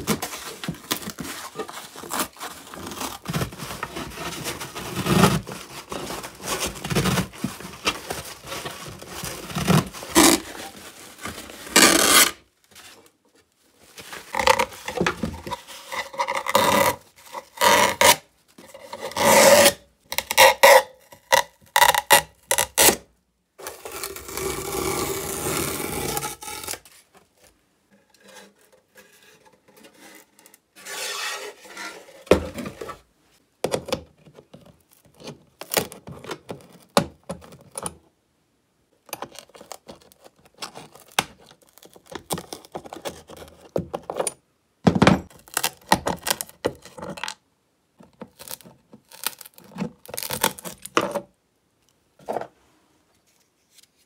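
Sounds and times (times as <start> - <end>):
fabric tearing and scraping on wood: 0.0 - 12.4, 23.6 - 27.0.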